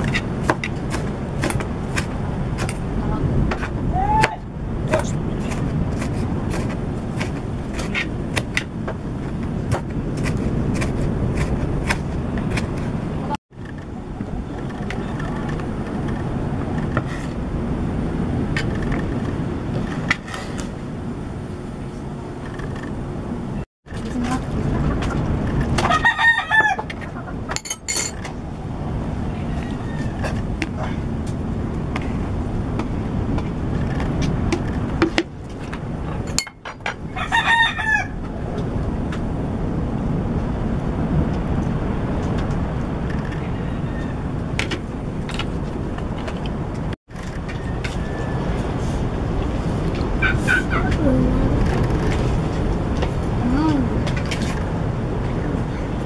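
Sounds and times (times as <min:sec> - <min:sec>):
low background rumble: 0:00.0 - 0:56.0
rooster crowing: 0:25.8 - 0:26.9, 0:37.1 - 0:38.2, 0:43.4 - 0:44.3, 0:47.5 - 0:48.6.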